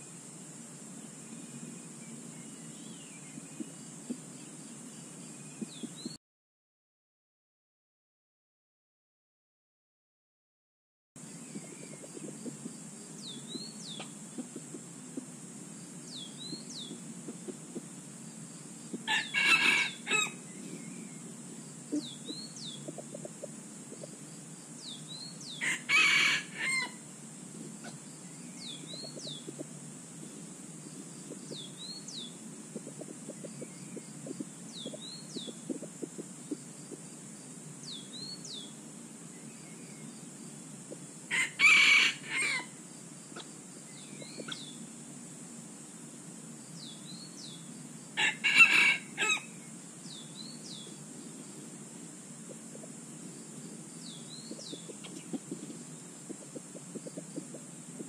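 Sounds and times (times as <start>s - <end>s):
steady high-pitched hum: 0.0s - 6.2s, 11.2s - 58.0s
rooster crowing: 19.0s - 20.4s, 25.6s - 27.0s, 41.3s - 42.7s, 48.2s - 49.5s.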